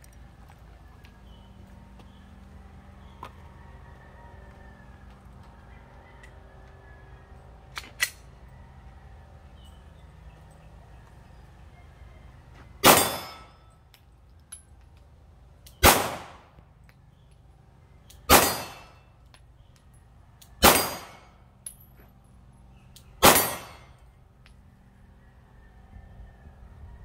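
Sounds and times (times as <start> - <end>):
pistol shots: 12.8 - 13.5, 15.8 - 16.5, 18.3 - 19.0, 20.6 - 21.3, 23.2 - 23.9.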